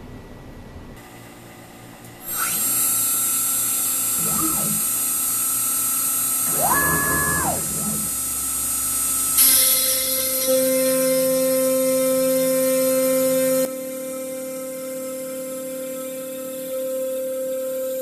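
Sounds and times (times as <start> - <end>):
cnc router spindle whine: 2.2 - 18.0
router bit cutting wood: 2.3 - 9.6
stepper motor axes whirring: 4.0 - 5.2, 6.3 - 9.6.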